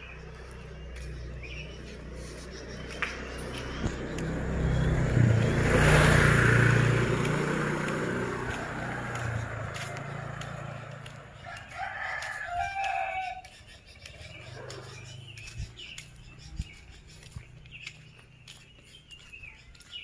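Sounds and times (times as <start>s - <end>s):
motorcycle passing by: 0.0s - 20.0s
rooster crowing: 11.4s - 13.5s.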